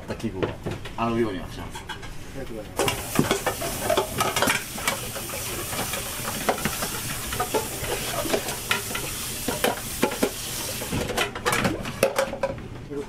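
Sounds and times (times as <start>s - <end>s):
tap water running into sink: 2.8s - 11.1s
bowls clinking against sink: 2.8s - 12.6s.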